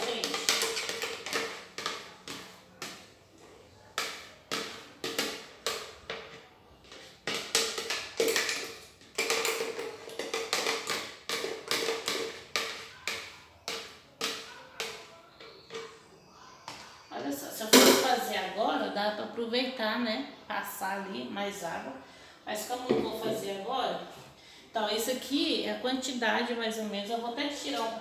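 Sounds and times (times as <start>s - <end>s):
spoon tapping plastic jar: 4.0s - 15.9s.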